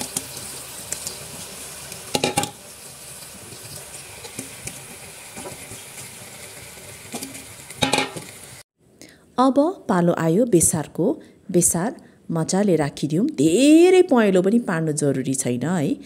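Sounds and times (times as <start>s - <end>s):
meat sizzling in hot oil: 0.0s - 8.7s
clatter against pot: 7.2s - 8.3s.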